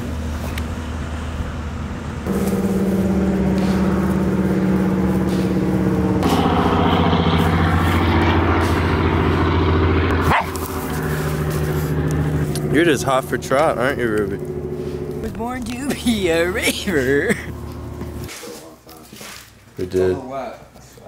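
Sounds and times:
motor engine running: 2.2 - 18.3.

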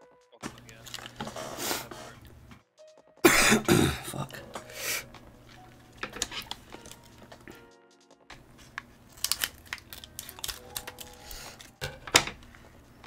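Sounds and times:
plastic packaging crinkling and tearing: 0.5 - 1.7, 6.2 - 7.3, 8.4 - 11.8.

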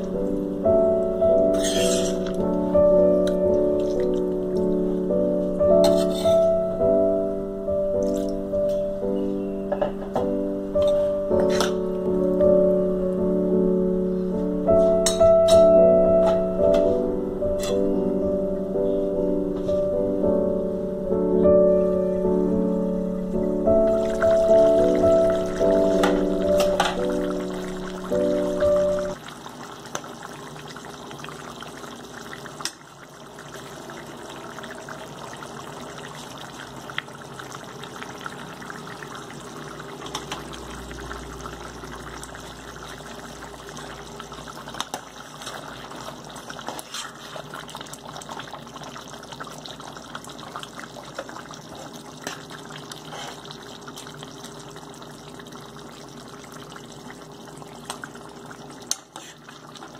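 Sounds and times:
curry bubbling in pot: 23.9 - 59.9.

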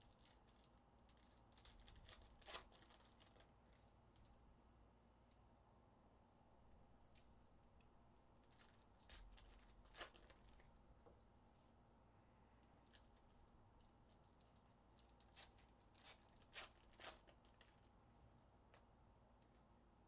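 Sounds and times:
foil wrappers crinkling and tearing: 0.0 - 4.3, 8.4 - 10.8, 12.8 - 17.9.

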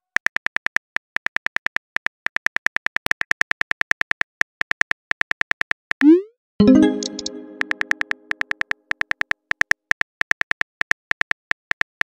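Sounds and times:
electronic keyboard clicks: 6.0 - 8.5.

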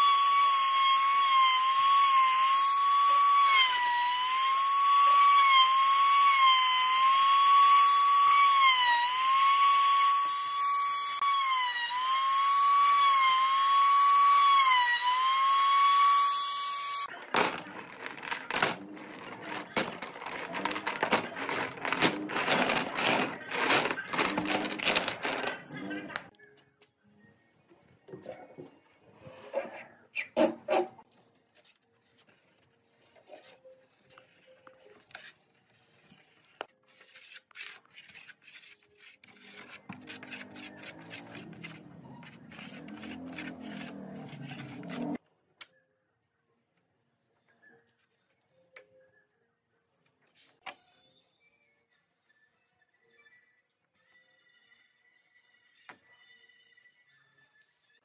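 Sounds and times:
wooden pieces clattering: 17.1 - 26.3
scraper spreading glue on wood: 35.1 - 45.2.

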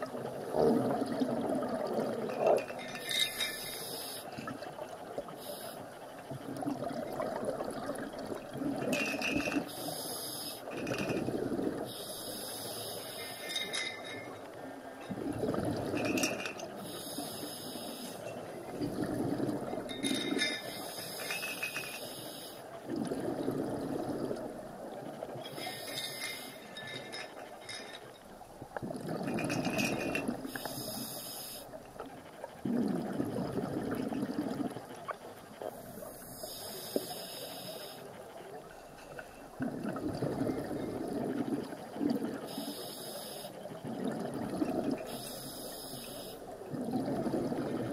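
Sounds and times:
exhaled bubbles rushing: 0.0 - 3.2, 15.1 - 16.6, 18.5 - 20.6, 22.8 - 25.3, 28.7 - 30.5, 32.6 - 35.2, 39.6 - 42.5, 43.8 - 45.1, 46.6 - 47.9
regulator hiss: 3.3 - 4.3, 9.7 - 10.7, 11.9 - 13.4, 16.8 - 18.2, 20.7 - 22.6, 30.5 - 31.7, 35.8 - 38.1, 42.5 - 43.6, 45.1 - 46.5.

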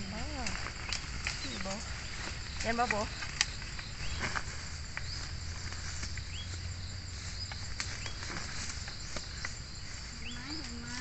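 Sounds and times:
insects droning: 0.0 - 11.0
rustles: 0.0 - 11.0.

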